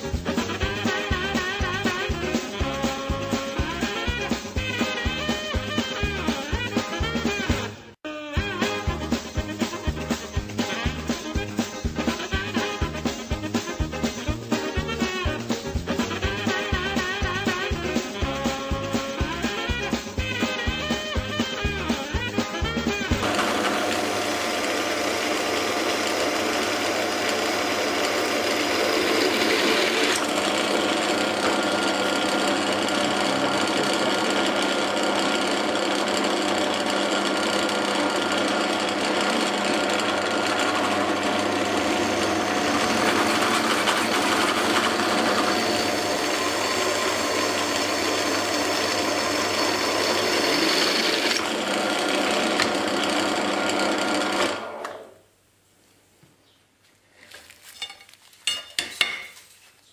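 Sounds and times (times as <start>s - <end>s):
drill bit grinding through metal: 23.0s - 54.7s
pillar drill motor hum: 23.2s - 55.1s.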